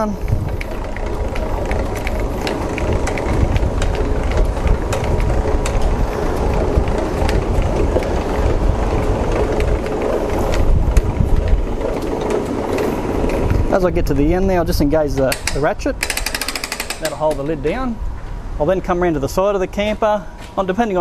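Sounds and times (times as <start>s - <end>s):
hand winch gears clicking: 0.0s - 13.6s, 15.1s - 17.6s
low rumble: 0.0s - 15.0s.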